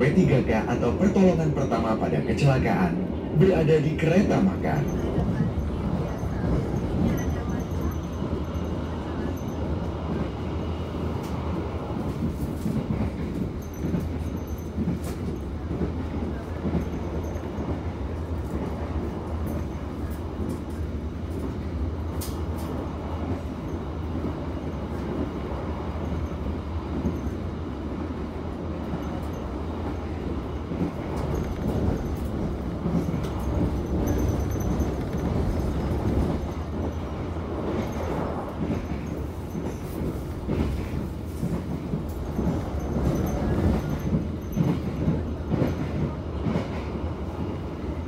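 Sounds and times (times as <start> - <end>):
train ride rumble: 0.0 - 48.0
wheels clicking on rails: 30.7 - 46.8.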